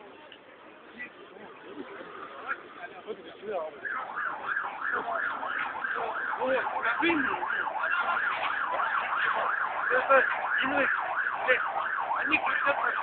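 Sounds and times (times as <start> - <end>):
emergency siren yelping: 3.7 - 13.0.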